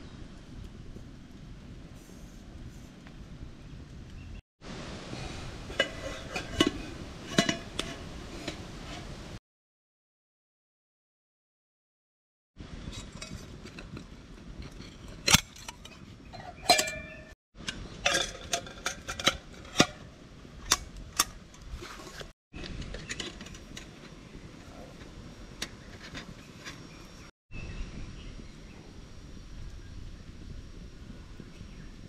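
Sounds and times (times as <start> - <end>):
metal pots clinking: 5.7 - 9.0, 12.9 - 21.4.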